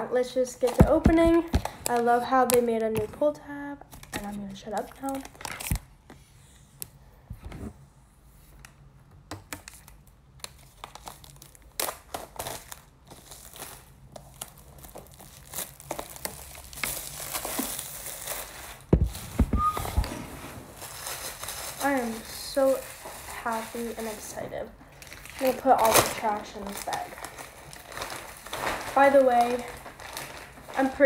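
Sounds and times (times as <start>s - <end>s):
plastic wrap crinkling and tearing: 0.6s - 5.9s, 9.4s - 31.0s
box knocking: 18.9s - 20.4s.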